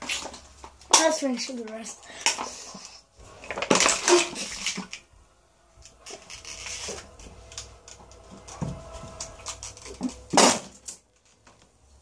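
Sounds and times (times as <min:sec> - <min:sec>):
plastic bottle crinkling: 0:02.2 - 0:05.1, 0:05.8 - 0:11.6.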